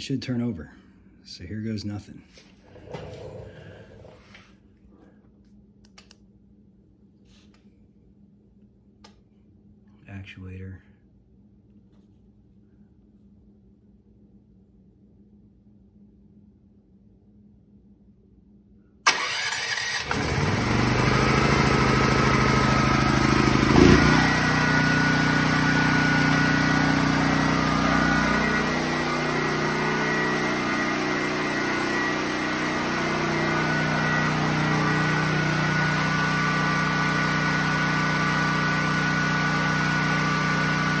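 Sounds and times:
electric starter cranking engine: 19.1 - 41.0
generator engine running: 19.1 - 41.0.

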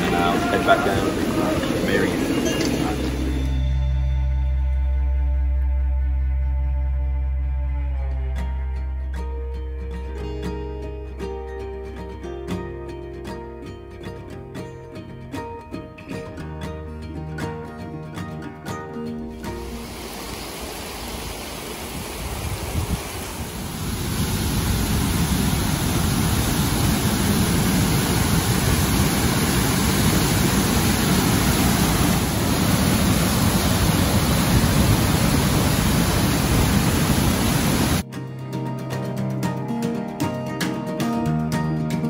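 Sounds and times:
waterfall rushing: 0.0 - 3.8, 19.4 - 38.0.

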